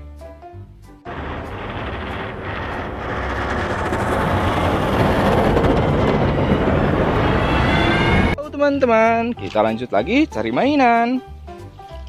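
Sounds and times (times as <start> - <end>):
heavy vehicle engine rumbling: 1.1 - 8.4
snow rushing off plow blade: 1.1 - 8.4.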